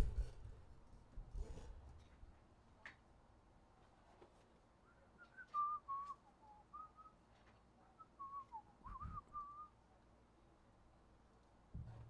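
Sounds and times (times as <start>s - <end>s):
person whistling a tune: 4.9s - 7.2s, 8.0s - 9.7s.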